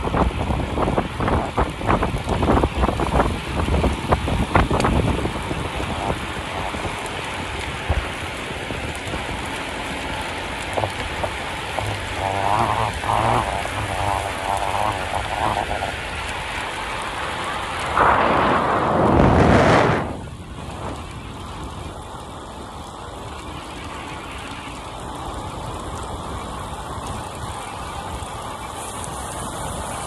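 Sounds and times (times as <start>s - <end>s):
wind and road noise: 0.0s - 30.0s
loud wind rush: 17.6s - 21.6s.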